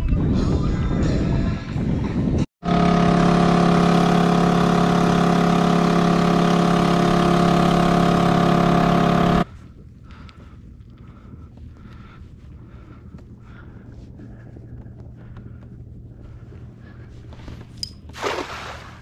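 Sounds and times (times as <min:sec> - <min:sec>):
outboard motor running: 0:02.6 - 0:09.5.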